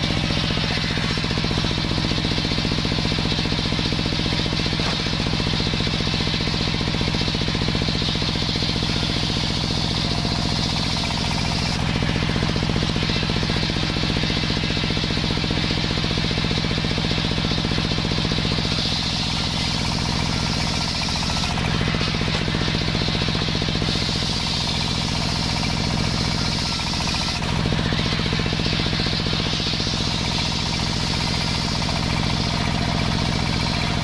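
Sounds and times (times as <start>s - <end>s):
circular saw motor throbbing: 0.0s - 34.0s
saw blade hissing through wood: 18.6s - 32.2s.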